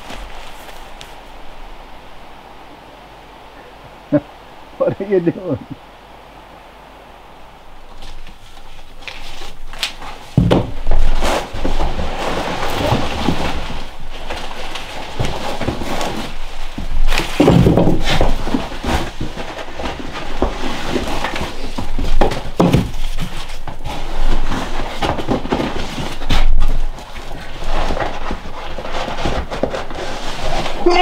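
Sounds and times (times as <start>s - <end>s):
heavier thumps: 10.2s - 13.6s, 16.7s - 19.4s.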